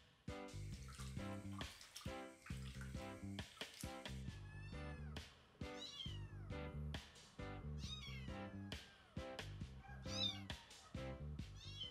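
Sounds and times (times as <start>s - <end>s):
background music: 0.0s - 11.9s
kitten meowing: 4.3s - 6.5s, 7.8s - 8.8s, 9.8s - 10.7s, 11.5s - 11.9s.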